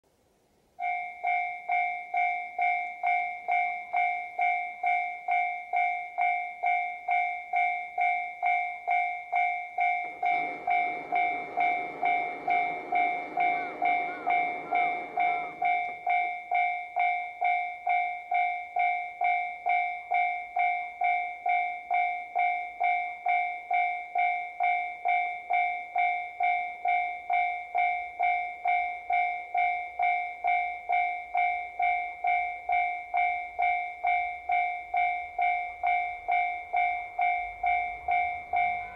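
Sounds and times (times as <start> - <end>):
level crossing bell ringing: 0.8 - 38.9
rushing noise: 10.0 - 15.8.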